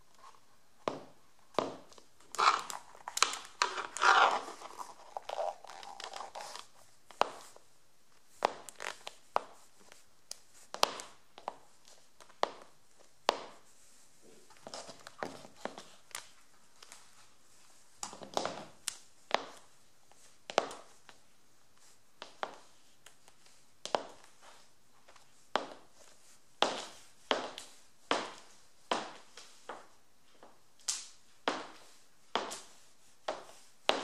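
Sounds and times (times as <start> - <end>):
high heels clicking on wooden floor: 0.8 - 6.2.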